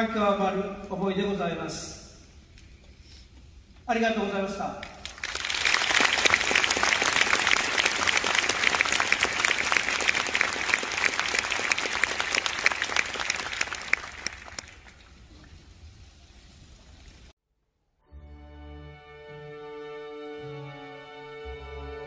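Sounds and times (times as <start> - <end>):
low hall noise: 0.0 - 17.3
audience applauding: 5.0 - 15.0.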